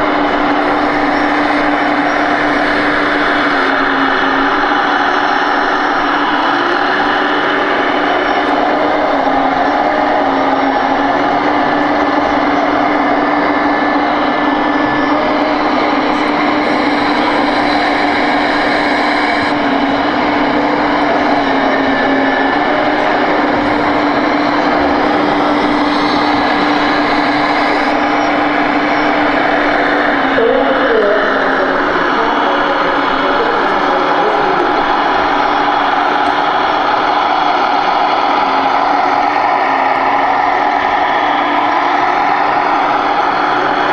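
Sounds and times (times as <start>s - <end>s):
diesel engine sound effect: 0.0s - 43.9s
hum of voices: 0.0s - 43.9s.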